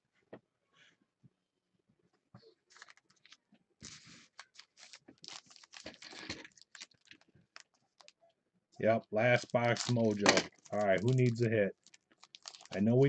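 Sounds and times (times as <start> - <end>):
wrappers crinkling: 2.7 - 8.2, 8.8 - 13.0.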